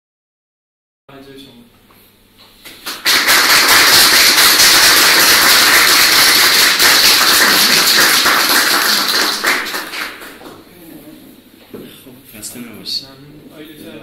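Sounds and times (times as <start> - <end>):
audience applauding: 2.7 - 10.6.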